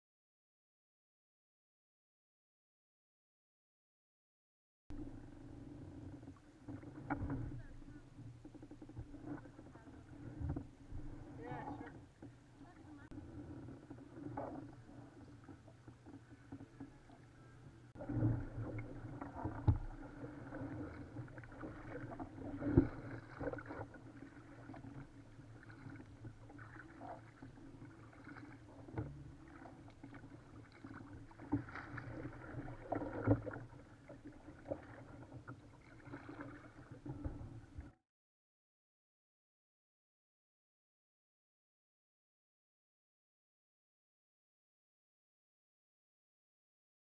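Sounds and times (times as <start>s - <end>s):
paddle splashing in water: 4.9s - 38.0s.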